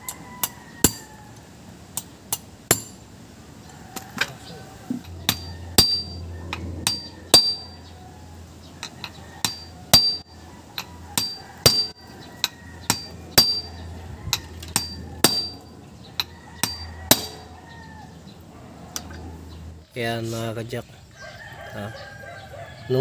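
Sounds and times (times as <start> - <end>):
hammer striking metal shaft: 2.0 - 3.0, 5.0 - 7.8, 8.8 - 12.0, 12.9 - 13.8, 14.4 - 17.5.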